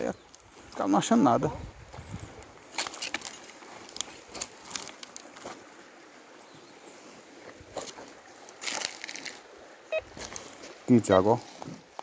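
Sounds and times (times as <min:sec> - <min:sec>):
faint outdoor background: 0:00.0 - 0:12.0
footsteps crunching on gravel: 0:01.8 - 0:05.7, 0:07.6 - 0:12.0.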